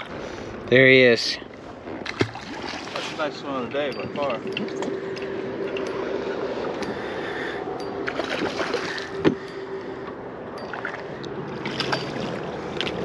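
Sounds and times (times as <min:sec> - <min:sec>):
faint steady hum: 0:00.0 - 0:13.0
river water rushing: 0:02.1 - 0:09.8, 0:10.6 - 0:13.0.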